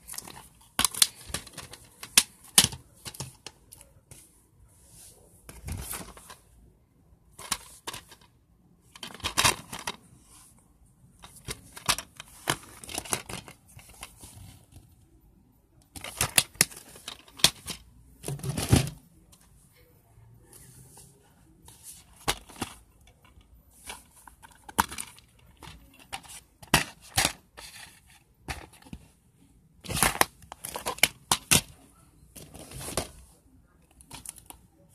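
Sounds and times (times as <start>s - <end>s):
plastic cases clicking and rustling: 0.0s - 3.9s, 5.5s - 6.5s, 7.3s - 10.1s, 11.2s - 14.8s, 15.8s - 19.4s, 21.8s - 29.1s, 29.8s - 33.2s, 33.9s - 34.6s.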